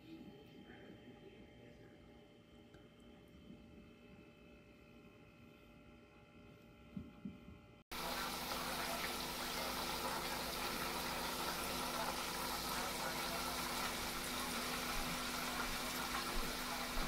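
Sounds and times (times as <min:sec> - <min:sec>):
food deep-frying in hot oil: 0:07.9 - 0:17.0.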